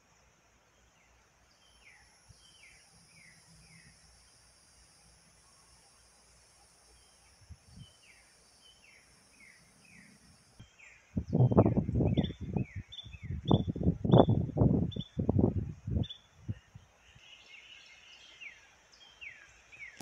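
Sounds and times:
high insect hiss: 0.0s - 20.0s
bird chirping: 0.7s - 5.0s, 6.8s - 15.2s
wind buffeting microphone: 11.1s - 16.8s.

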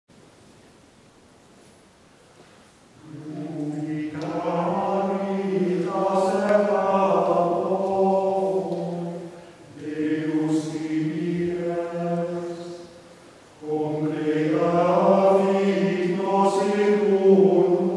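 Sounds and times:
choir chanting a cappella: 3.0s - 17.9s
breath: 9.3s - 9.7s.

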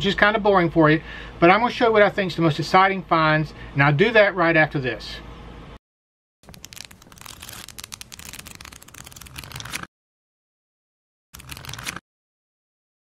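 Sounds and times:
book pages turning and flicking: 6.4s - 9.9s, 11.4s - 12.0s.

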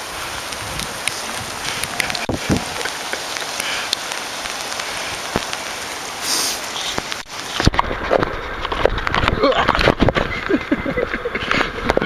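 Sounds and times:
water hissing: 0.0s - 7.6s.

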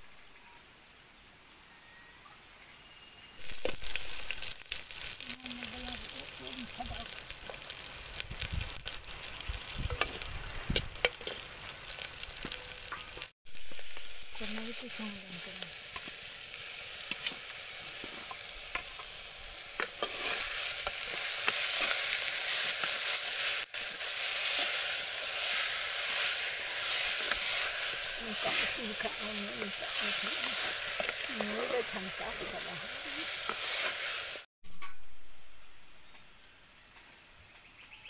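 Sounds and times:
food sizzling in hot oil: 3.4s - 34.5s
spoon scraping a pot: 19.8s - 22.1s.

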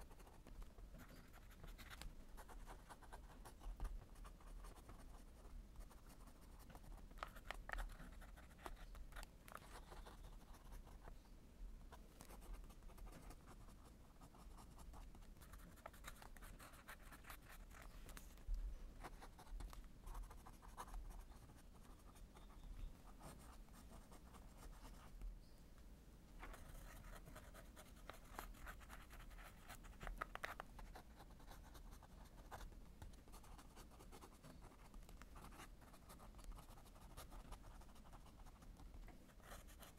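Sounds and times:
pen nib scratching on paper: 0.0s - 11.1s, 12.1s - 25.2s, 26.4s - 39.9s.

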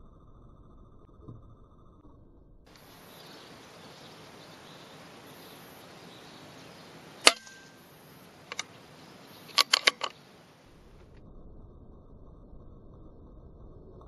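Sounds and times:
steady low hiss: 2.7s - 14.0s
air rifle firing crack: 7.2s - 8.7s, 9.4s - 10.9s
light mechanical clicks: 8.5s - 8.8s, 9.4s - 10.2s.

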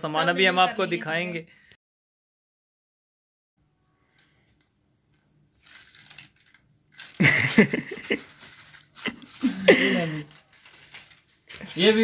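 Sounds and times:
paper bag rustling: 5.1s - 12.0s.

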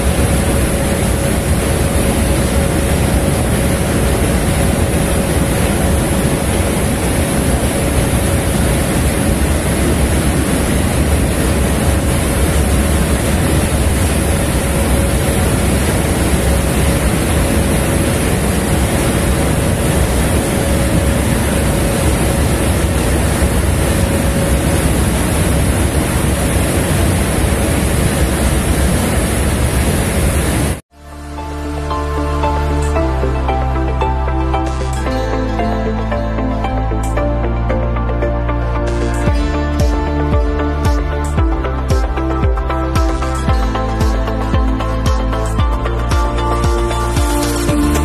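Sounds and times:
water wash: 0.0s - 30.8s
ship engine rumble: 0.0s - 48.0s.

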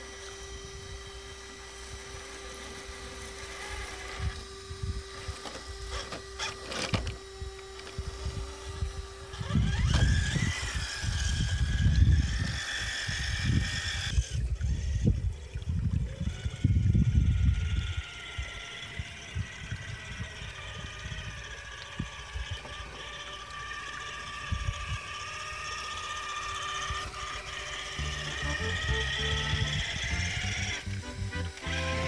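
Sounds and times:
electric motor whining: 0.0s - 32.0s.

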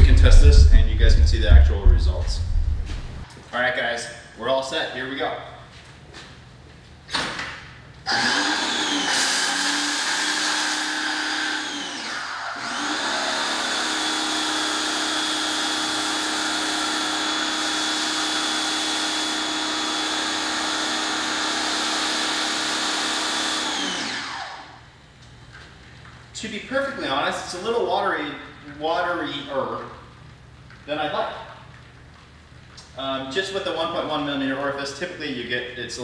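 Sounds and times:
pressure washer motor whine: 8.1s - 24.8s.

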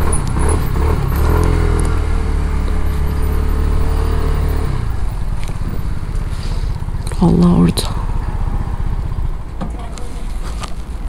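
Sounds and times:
vehicle engine idling: 0.0s - 11.0s.

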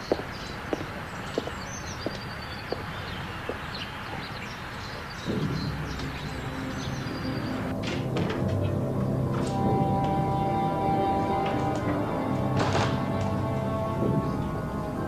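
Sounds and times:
footsteps on stone steps: 0.0s - 7.2s
birds chirping: 0.0s - 15.0s
low ominous music: 5.1s - 15.0s.

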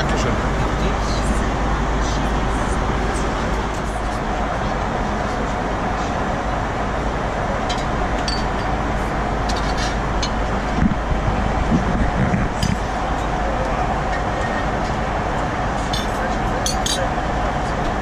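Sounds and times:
airplane cabin noise: 0.0s - 18.0s
dull low bumps: 10.5s - 13.2s.

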